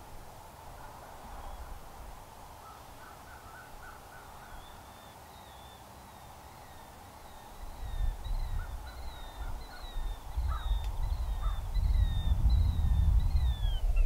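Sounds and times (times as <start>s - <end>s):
distant crow caws: 2.6s - 5.2s, 6.7s - 11.7s
faint wavering whistle: 4.5s - 14.0s
wind buffeting microphone: 7.3s - 14.0s.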